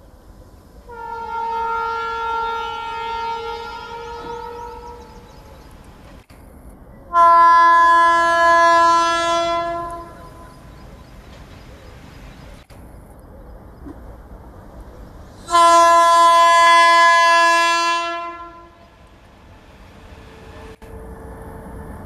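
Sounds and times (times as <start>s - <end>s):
locomotive horn blasts: 0.9s - 5.2s, 7.1s - 10.6s, 15.5s - 18.9s.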